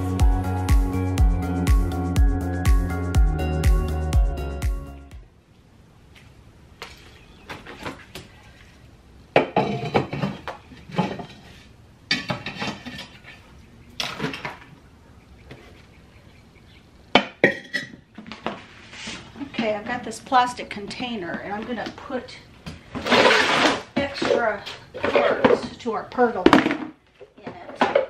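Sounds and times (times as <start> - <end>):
flower pots clinking and knocking: 9.3 - 14.7, 17.1 - 18.7, 22.7 - 28.0.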